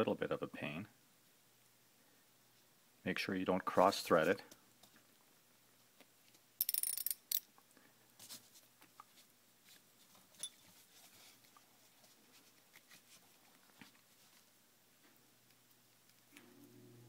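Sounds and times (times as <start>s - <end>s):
fingers handling small nut and bolt: 6.6s - 7.6s.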